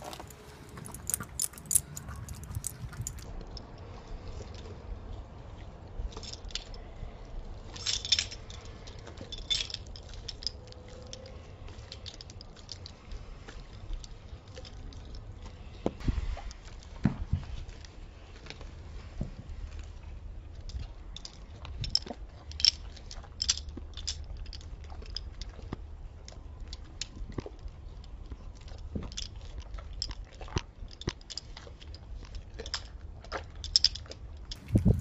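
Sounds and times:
dog chewing and licking: 0:00.0 - 0:03.2.

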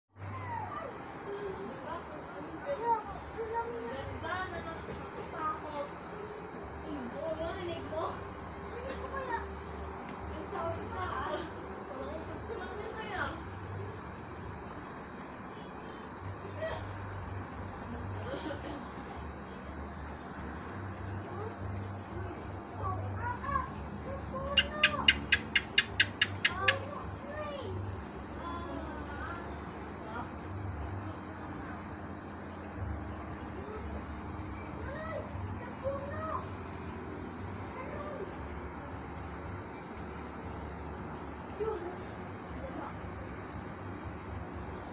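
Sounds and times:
crickets and insects chirping: 0:00.1 - 0:44.9
faint distant voices: 0:00.2 - 0:44.9
low uneven rumble: 0:00.2 - 0:44.9
faint rising and falling calls: 0:18.9 - 0:40.2.

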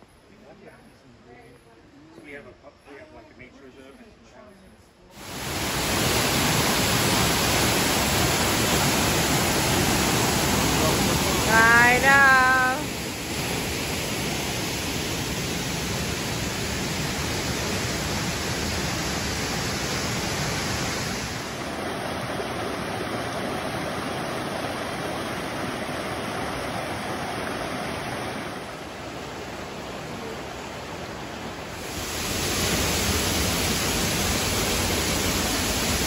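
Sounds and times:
waterfall pouring into pool: 0:05.2 - 0:27.2, 0:31.8 - 0:36.0
stream running over stones: 0:05.2 - 0:36.0.

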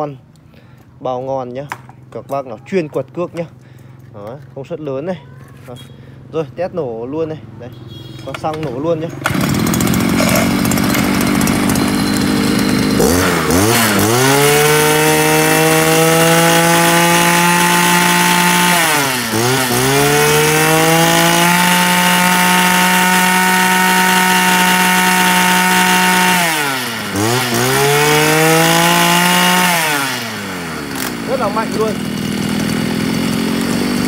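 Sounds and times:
brush cutter engine revving: 0:08.1 - 0:34.0.

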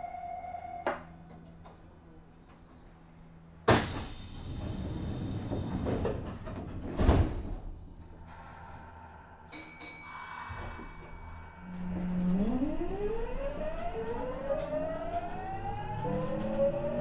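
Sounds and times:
low hum of standing train: 0:00.0 - 0:17.0
train doors sliding shut: 0:03.7 - 0:07.8.

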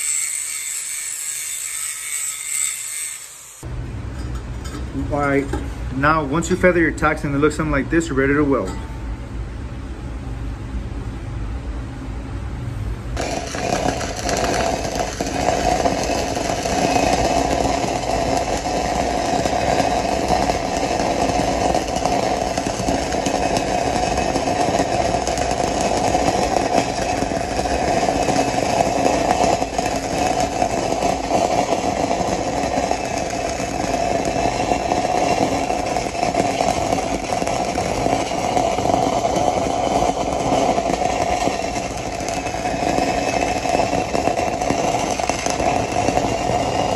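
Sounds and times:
welding arc crackling: 0:00.0 - 0:03.7, 0:13.2 - 0:46.9.

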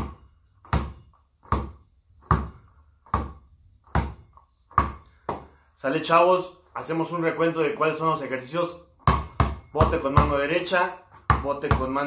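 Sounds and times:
basketball bouncing on floor: 0:00.0 - 0:05.5, 0:09.0 - 0:12.0.

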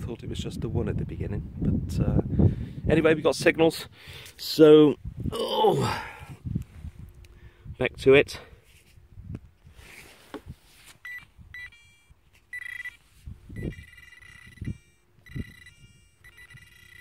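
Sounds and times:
high electronic beeping tone: 0:11.0 - 0:17.0.

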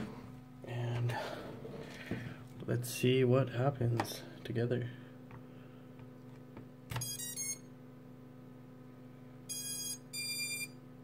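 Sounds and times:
motor startup beeps: 0:07.0 - 0:07.7, 0:09.5 - 0:10.8.

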